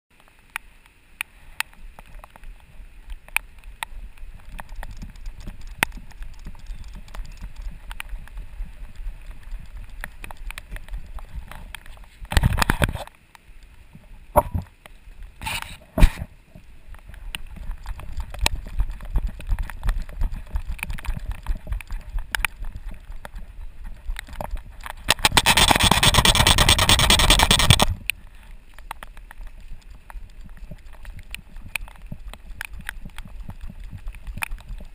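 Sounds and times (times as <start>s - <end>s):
dog paws on wet pavement: 0.2s - 34.9s
short noisy bursts: 25.1s - 28.0s.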